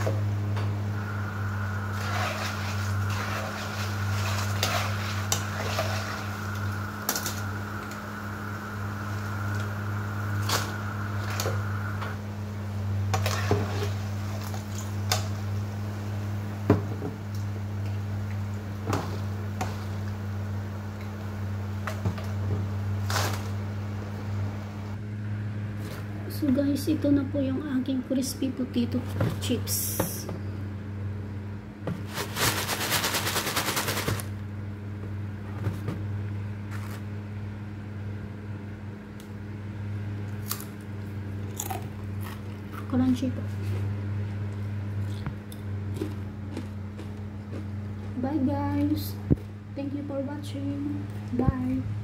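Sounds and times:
faint high whine: 0.0 - 16.7
steady low hum: 0.0 - 52.0.

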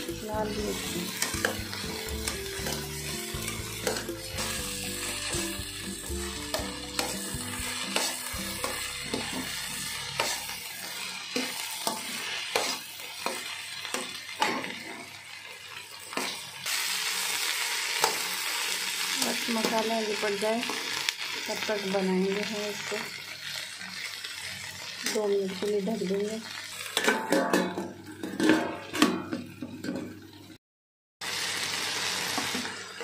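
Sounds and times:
metal spatula scraping a pan: 0.0 - 16.4, 26.8 - 30.1
okra sizzling in hot oil: 0.0 - 30.6, 31.2 - 33.0.

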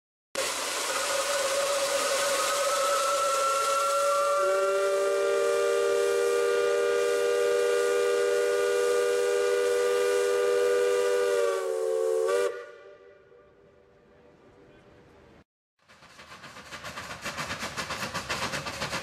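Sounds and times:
hiss of escaping steam: 0.4 - 10.5, 15.9 - 19.0
steam whistle blast: 0.4 - 13.6.

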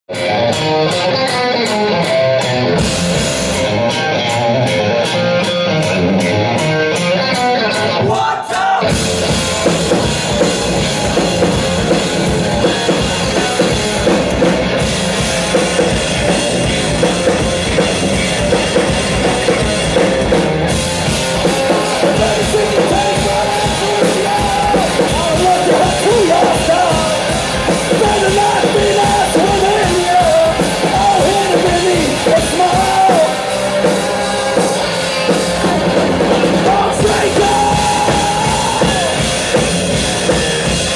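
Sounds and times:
drum kit: 0.1 - 40.9
electric guitar: 0.1 - 40.9.

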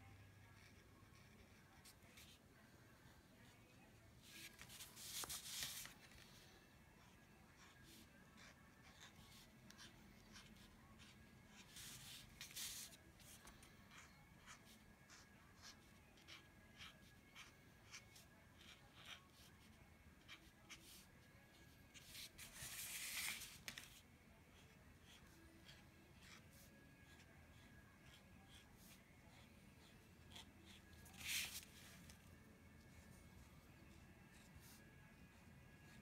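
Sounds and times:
marker scratching on card: 4.2 - 6.2, 7.0 - 32.2.

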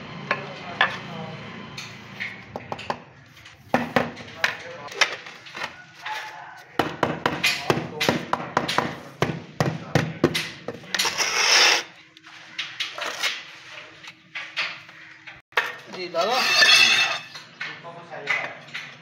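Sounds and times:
harsh scrape: 11.0 - 14.1.

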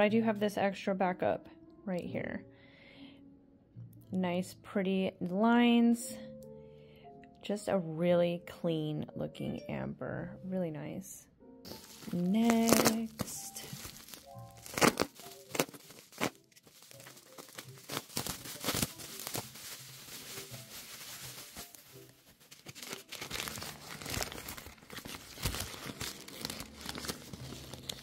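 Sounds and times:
newspaper rustling: 11.7 - 28.0
plastic wrap crinkling and tearing: 11.7 - 28.0.

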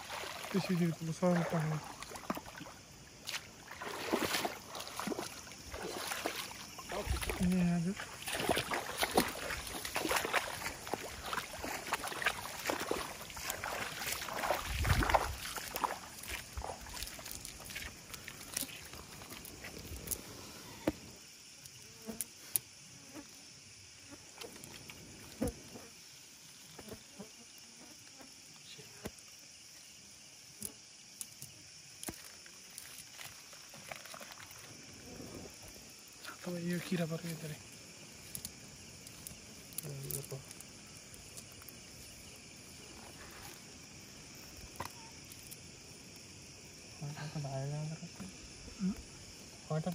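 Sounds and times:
shallow water splashing: 0.0 - 20.2, 32.2 - 44.8
wet net clicks and rustles: 32.0 - 34.7
steady high hiss: 34.7 - 49.9.

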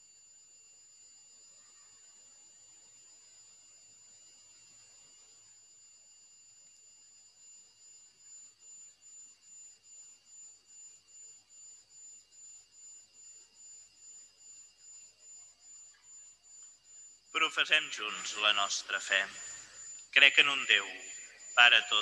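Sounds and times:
faint high-pitched tones: 14.8 - 22.0.

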